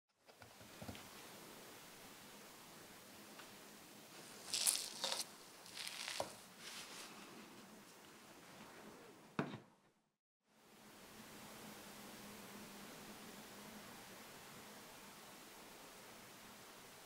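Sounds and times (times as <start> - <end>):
bread rolls rustling on metal tray: 4.1 - 7.5.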